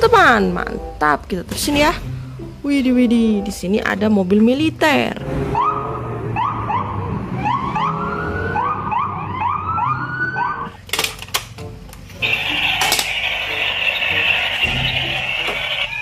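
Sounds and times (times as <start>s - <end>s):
toy siren whooping: 5.6s - 10.7s, 12.2s - 16.0s.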